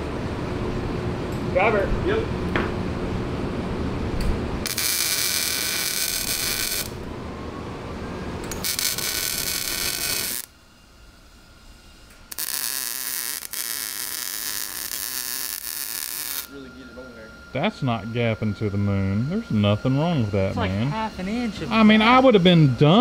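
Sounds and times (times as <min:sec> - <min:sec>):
welding arc crackle: 0:04.6 - 0:07.1, 0:08.5 - 0:10.5, 0:12.3 - 0:16.5.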